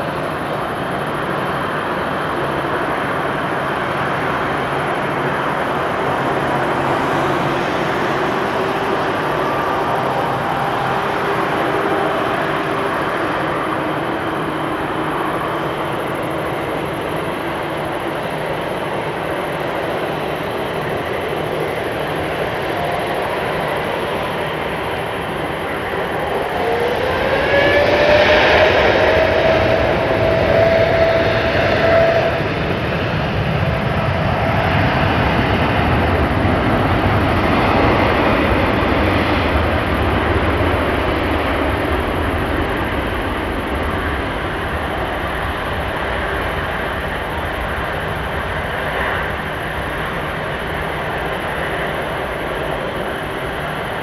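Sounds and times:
jet engine roar: 0:00.0 - 0:54.0
rising engine whine: 0:00.0 - 0:54.0.

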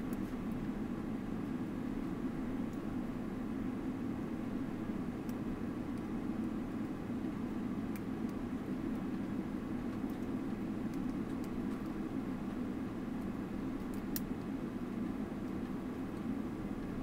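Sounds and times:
aircraft cabin drone: 0:00.0 - 0:17.0.

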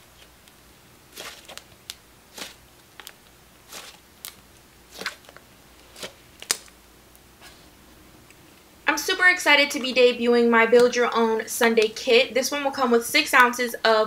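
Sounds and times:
slime squeezed by hand: 0:01.1 - 0:06.6.

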